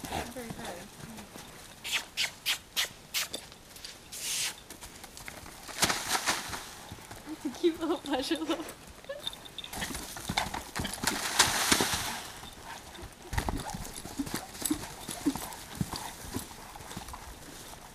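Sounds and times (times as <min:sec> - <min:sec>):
horse hoofbeats in soft sand: 0:00.0 - 0:02.0, 0:09.2 - 0:17.9
scuffling in sand: 0:11.1 - 0:13.8.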